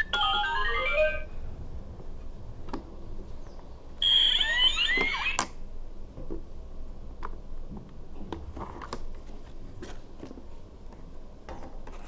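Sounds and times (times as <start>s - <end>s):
chirpy gliding electronic sounds: 4.0s - 5.3s.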